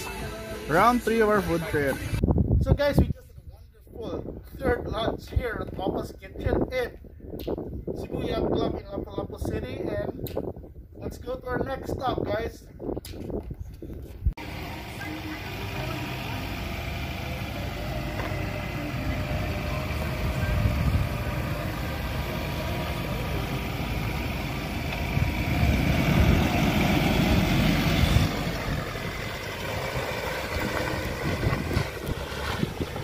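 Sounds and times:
diesel engine idling: 0.0s - 2.2s, 14.4s - 33.0s.

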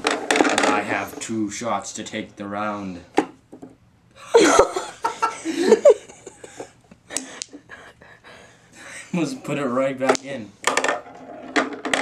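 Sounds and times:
person laughing: 4.2s - 8.2s.

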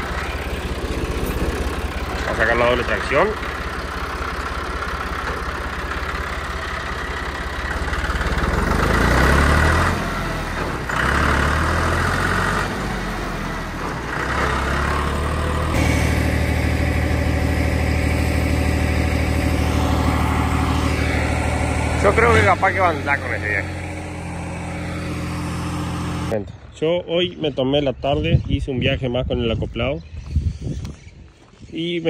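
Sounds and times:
tractor engine running: 0.0s - 26.4s.

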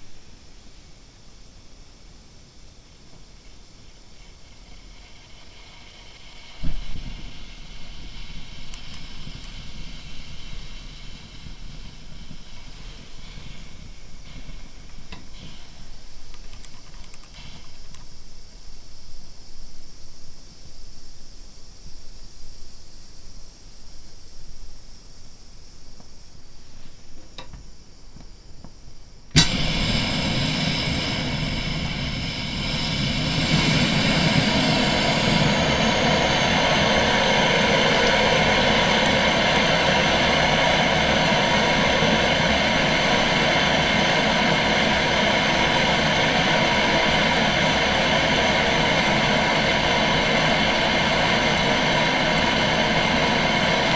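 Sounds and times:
stove burner hissing: 0.0s - 53.9s
fuel igniting with a pop: 4.2s - 18.2s, 29.3s - 51.2s.

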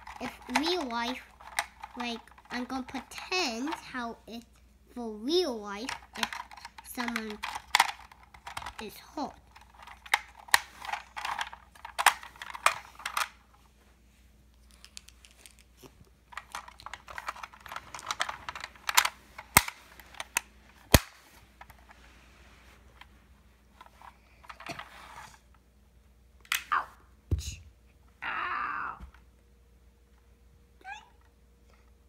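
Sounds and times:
plastic toy clicking and rattling: 0.0s - 4.0s, 5.7s - 13.4s, 16.3s - 21.7s, 24.4s - 24.9s.

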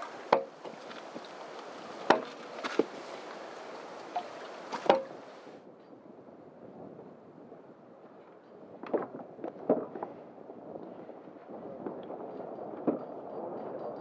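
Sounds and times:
oars knocking in wooden oarlocks: 0.0s - 5.3s
steady hiss: 0.0s - 5.6s.

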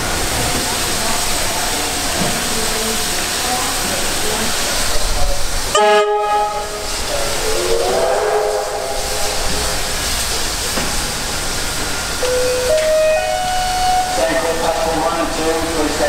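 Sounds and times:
steam hissing: 0.0s - 16.0s
steam train whistle: 5.7s - 10.3s, 12.3s - 14.7s.

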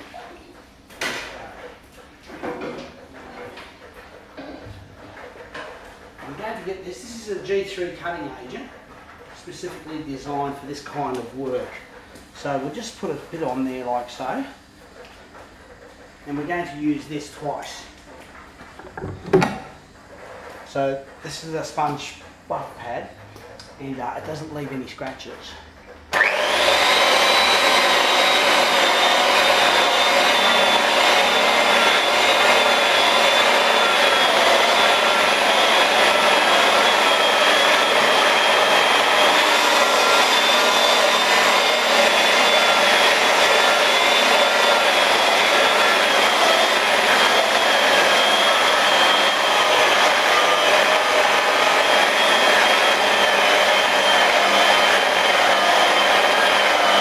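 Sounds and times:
rotary polisher motor whine: 26.1s - 57.0s.

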